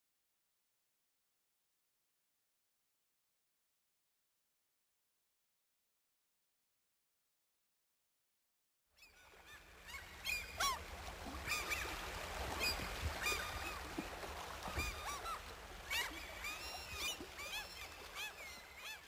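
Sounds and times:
waterbirds calling: 9.0 - 19.0.

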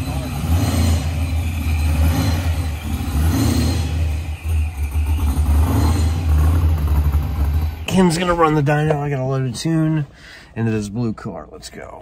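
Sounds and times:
car engine idling unevenly: 0.0 - 12.0.

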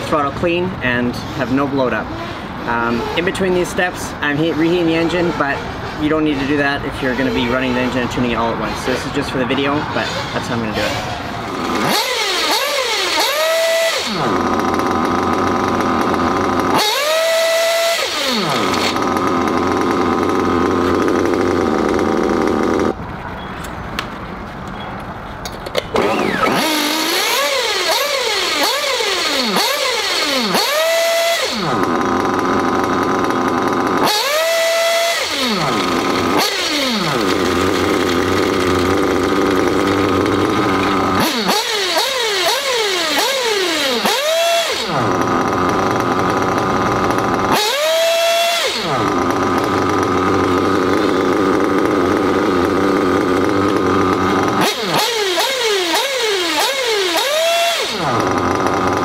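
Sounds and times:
model engine revving and idling: 0.0 - 23.0, 25.9 - 59.0.

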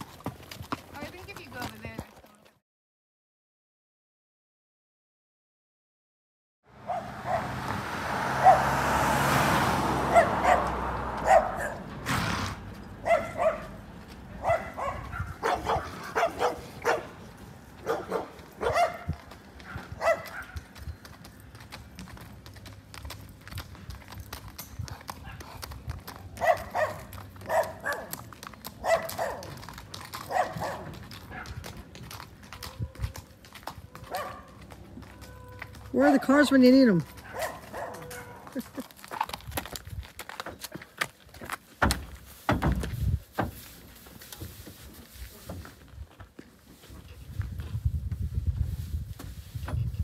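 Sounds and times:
horse hooves on gravel: 0.0 - 2.6, 9.8 - 50.0
car passing: 6.7 - 24.5
dog barking: 6.8 - 7.6, 8.4 - 8.7, 10.1 - 11.9, 13.0 - 13.8, 14.4 - 17.2, 17.8 - 20.7, 26.4 - 28.2, 28.8 - 29.6, 30.2 - 31.6, 34.0 - 34.6, 37.2 - 38.6.

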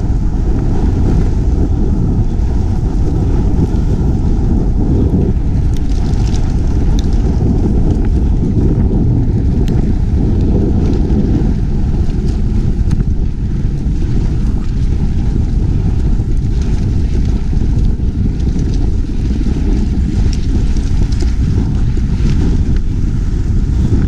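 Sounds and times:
bike rattle: 0.0 - 24.0
bike riding over gravel rumble: 0.0 - 24.0
wind buffeting microphone: 0.0 - 24.0.

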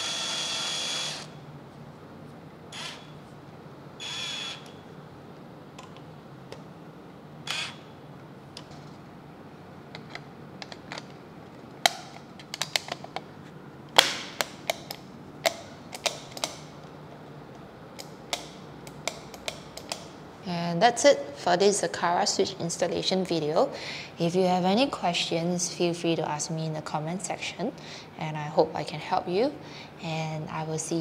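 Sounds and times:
cordless drill whirring: 0.0 - 1.3, 2.7 - 3.1, 4.0 - 4.8, 7.4 - 7.8.

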